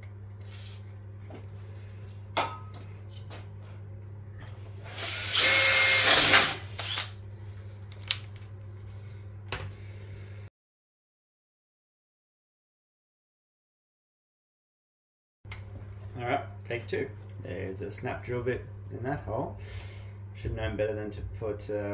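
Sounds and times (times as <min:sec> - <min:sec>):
cordless drill boring into metal: 0:04.9 - 0:07.1.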